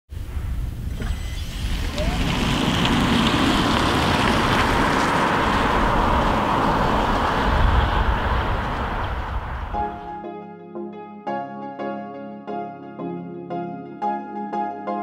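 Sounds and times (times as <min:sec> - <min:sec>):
vehicle rushing at speed: 0:00.9 - 0:10.1.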